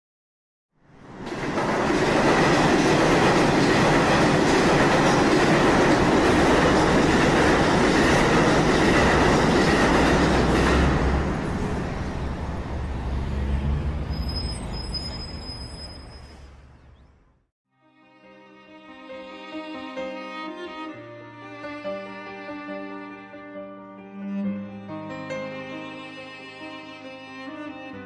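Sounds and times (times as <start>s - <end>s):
train passing at speed: 0.8s - 16.9s.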